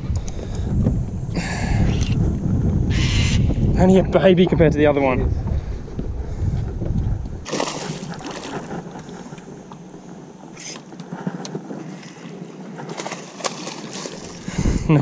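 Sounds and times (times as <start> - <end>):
wind buffeting microphone: 0.0 - 15.0
light water noise: 7.4 - 15.0
fish splashing at surface: 7.5 - 9.0, 12.9 - 14.4.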